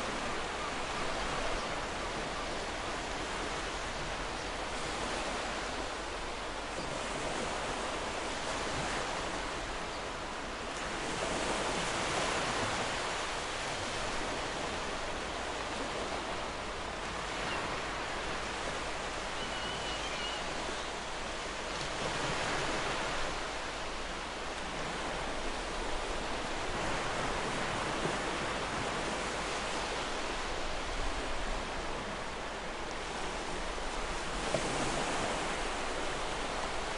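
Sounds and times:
ocean waves washing onto shore: 0:00.0 - 0:36.9
distant gull crying: 0:19.2 - 0:20.7.

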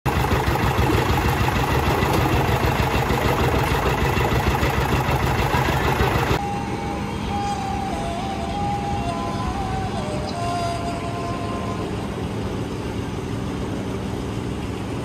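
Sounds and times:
concrete mixer engine running: 0:00.0 - 0:06.4
soft background music: 0:06.4 - 0:12.5.

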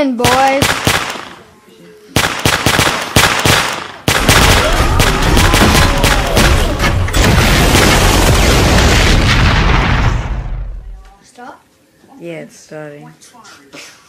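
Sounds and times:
rapid automatic gunfire: 0:00.2 - 0:01.3, 0:02.2 - 0:09.4
heavy gunshots: 0:00.2 - 0:01.4, 0:02.2 - 0:10.9.

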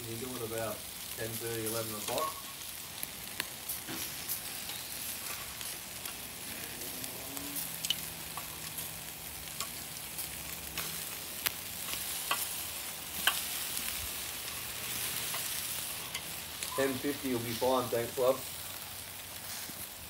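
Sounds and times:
meat sizzling on a grill: 0:00.0 - 0:20.0.

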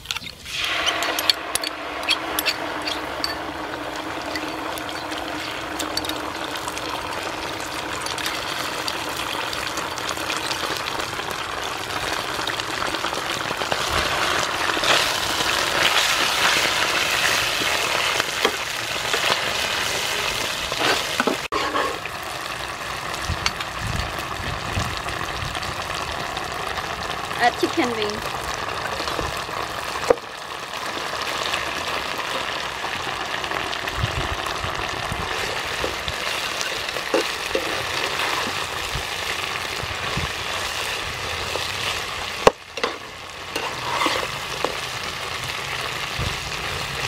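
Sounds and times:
metal spoon scraping a pan: 0:00.0 - 0:06.3, 0:20.7 - 0:22.1, 0:35.4 - 0:38.6, 0:42.8 - 0:44.9
sauce and garlic sizzling in oil: 0:00.0 - 0:47.0.

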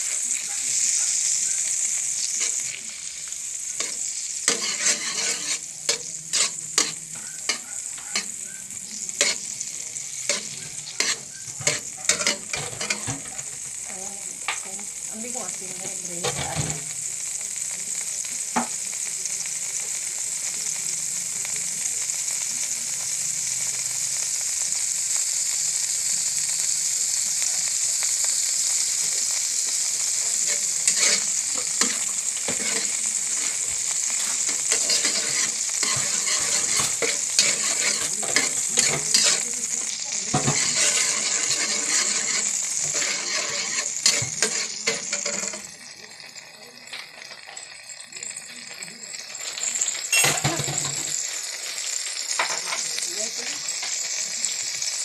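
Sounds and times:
fat sizzling in pan: 0:00.0 - 0:55.0
metal spatula scraping pan: 0:03.7 - 0:08.4, 0:09.2 - 0:13.4, 0:30.2 - 0:45.7.

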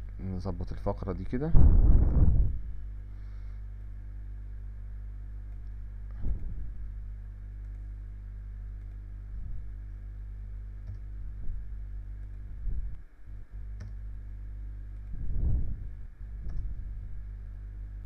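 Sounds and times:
low electrical hum: 0:00.0 - 0:18.0
soft low thumps: 0:01.4 - 0:02.9, 0:05.8 - 0:07.1, 0:10.8 - 0:14.0, 0:15.0 - 0:17.4
computer mouse and keyboard clicks: 0:08.7 - 0:09.0.

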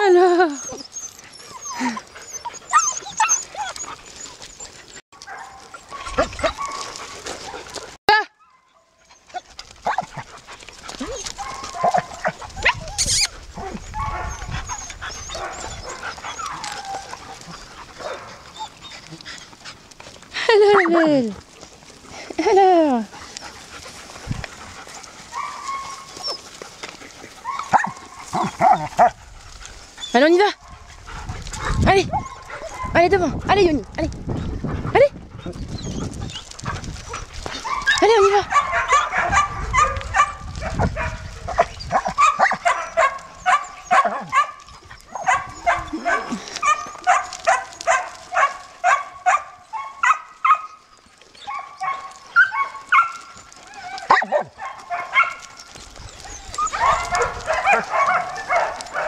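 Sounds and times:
puppies yipping and whining: 0:00.0 - 0:19.9, 0:23.2 - 0:30.3, 0:35.4 - 0:59.0
puppy whining: 0:00.3 - 0:05.0, 0:10.9 - 0:17.7, 0:35.4 - 0:38.1, 0:55.2 - 0:59.0.

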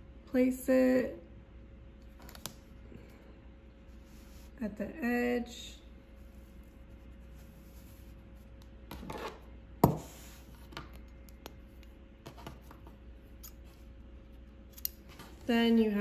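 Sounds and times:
scissors clicking and cutting tape: 0:14.7 - 0:15.0.

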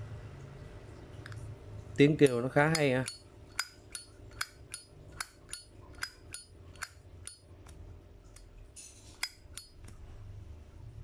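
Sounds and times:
lighter flint wheel rasp: 0:02.3 - 0:07.4, 0:09.1 - 0:09.8
lighter lid clinking open and shut: 0:02.7 - 0:07.4, 0:09.1 - 0:09.9.

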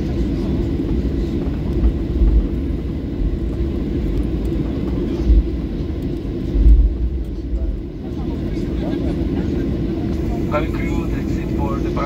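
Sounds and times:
low jet engine rumble: 0:00.0 - 0:12.0.

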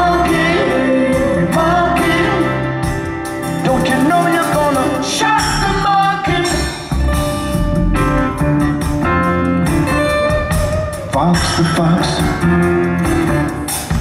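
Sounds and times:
person singing: 0:00.0 - 0:07.0
live rock band playing: 0:00.0 - 0:14.0.

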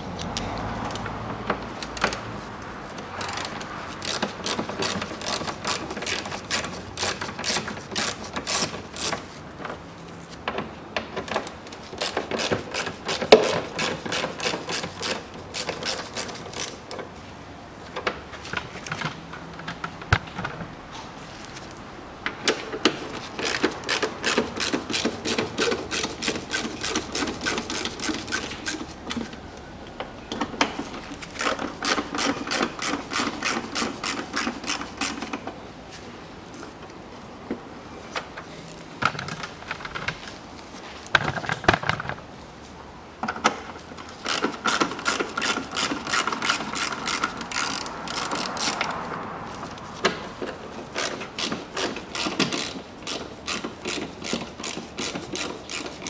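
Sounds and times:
hand ratchet clicking: 0:03.2 - 0:09.3, 0:11.4 - 0:16.9, 0:23.4 - 0:29.2, 0:31.2 - 0:35.4, 0:44.2 - 0:49.0, 0:50.9 - 0:56.0.

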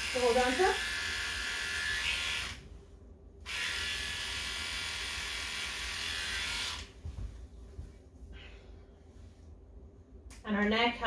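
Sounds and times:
electric clippers buzzing: 0:00.0 - 0:02.6, 0:03.4 - 0:06.9.

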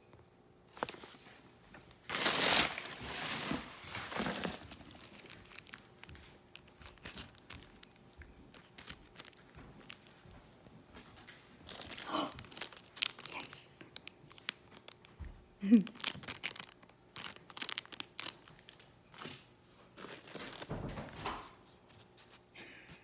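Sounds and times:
paper and cardboard rustling: 0:00.7 - 0:10.2, 0:16.0 - 0:22.5.

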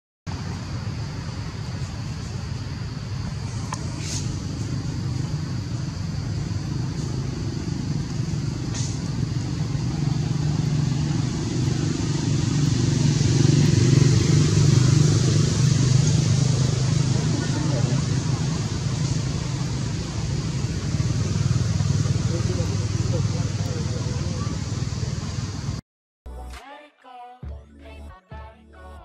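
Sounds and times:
low engine hum: 0:00.3 - 0:25.8
faint high hiss: 0:00.4 - 0:15.8.

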